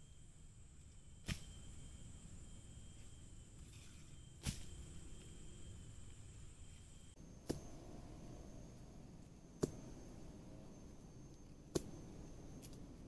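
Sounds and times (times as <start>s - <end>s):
chopping wood: 7.4s - 7.7s, 9.6s - 10.0s, 11.7s - 11.9s.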